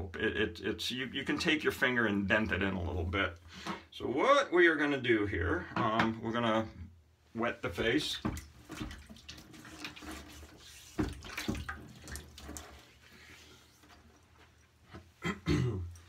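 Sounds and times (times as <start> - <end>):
tap water running into sink: 7.8 - 13.2
hands splashing water on face: 8.1 - 14.0.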